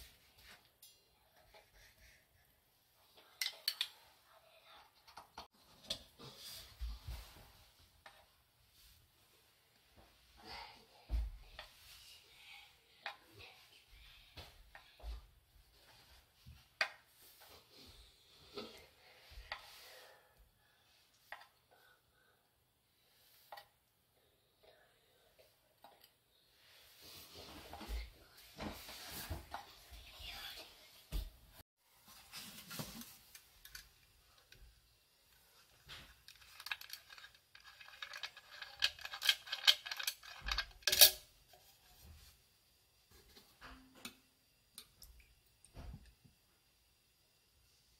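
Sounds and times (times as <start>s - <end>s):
metal tongs scraping and tapping: 36.3s - 41.2s.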